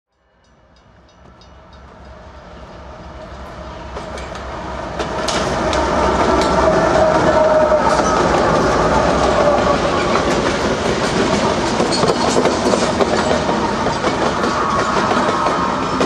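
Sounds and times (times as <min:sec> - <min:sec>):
freight train rumbling: 0:00.4 - 0:16.0
wheel and rail clatter: 0:03.9 - 0:16.0.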